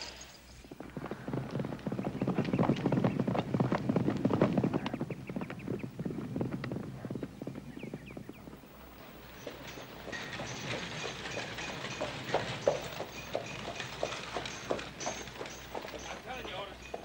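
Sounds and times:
horse hoofbeats on dirt: 0:00.0 - 0:17.0.

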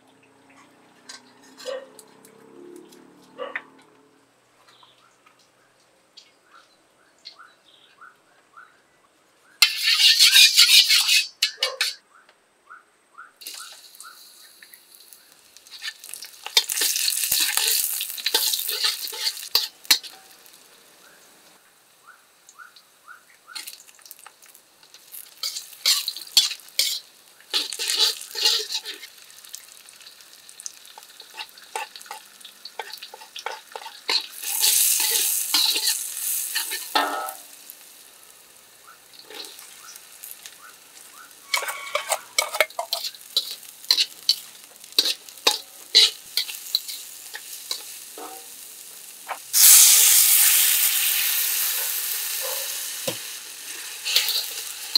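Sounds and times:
metal spatula stirring in wok: 0:09.6 - 0:12.0, 0:15.6 - 0:20.6, 0:24.5 - 0:37.9, 0:39.1 - 0:50.7, 0:53.0 - 0:54.9
onion and chillies sizzling in oil: 0:09.6 - 0:12.0, 0:13.4 - 0:54.9.

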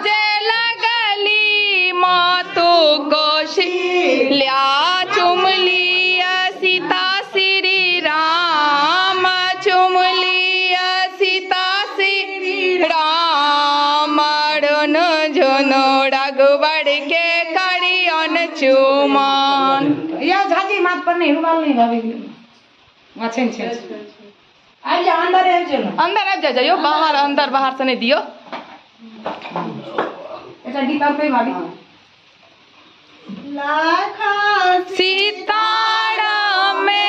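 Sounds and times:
women singing folk song: 0:00.0 - 0:20.3, 0:33.3 - 0:37.0.

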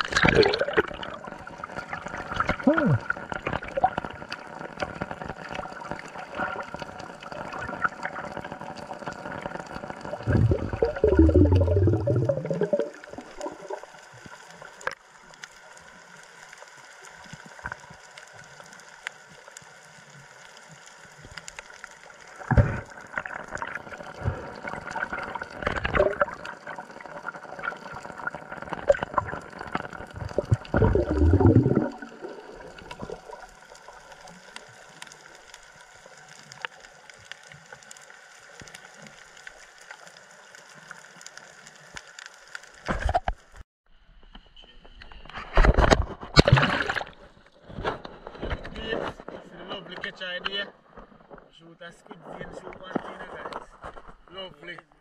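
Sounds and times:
water sloshing and gurgling: 0:00.0 - 0:15.1, 0:22.2 - 0:37.9, 0:45.3 - 0:49.5
water rushing: 0:00.0 - 0:15.2, 0:22.0 - 0:37.0.

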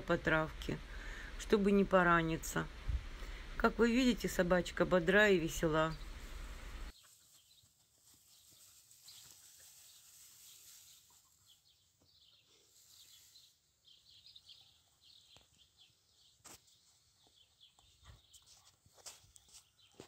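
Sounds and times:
faint small birds chirping: 0:05.3 - 0:20.0.

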